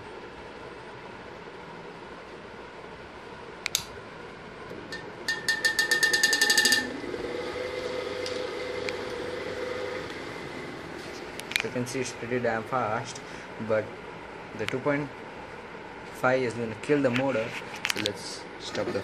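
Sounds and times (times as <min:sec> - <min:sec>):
fan motor hum: 0:00.0 - 0:19.0
fan switch click: 0:03.6 - 0:04.0
rapid ticking rattle: 0:05.3 - 0:07.0.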